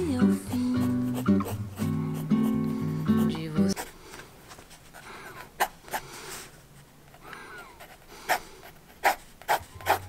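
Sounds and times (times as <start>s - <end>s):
pencil sketching on paper: 0.2s - 4.0s, 7.8s - 10.0s
person breathing loudly: 5.0s - 6.6s, 7.2s - 8.8s.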